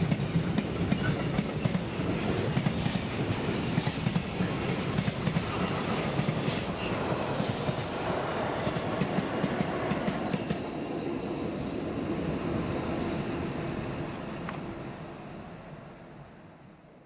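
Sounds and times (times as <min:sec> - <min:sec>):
train wheels clattering on rail joints: 0:00.0 - 0:08.0
train rumble: 0:00.0 - 0:17.0.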